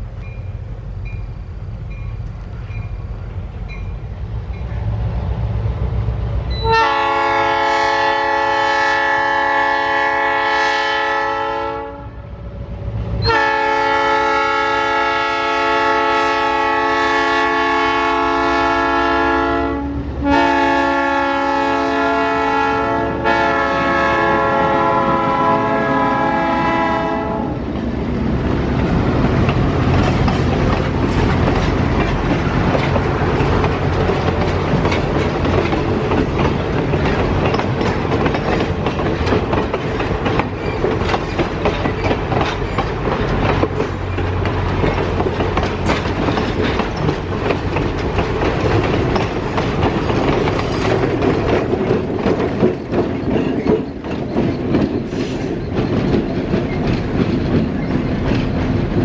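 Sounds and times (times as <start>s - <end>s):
train wheels rumbling on rail: 0.0s - 59.0s
locomotive horn blasts: 6.5s - 12.4s, 13.2s - 27.6s.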